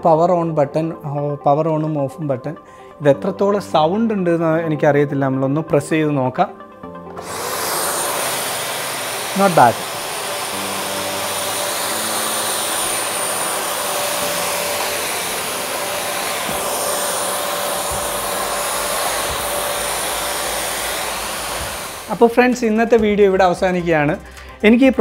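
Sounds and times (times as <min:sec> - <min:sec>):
vacuum cleaner running: 0:07.0 - 0:23.1.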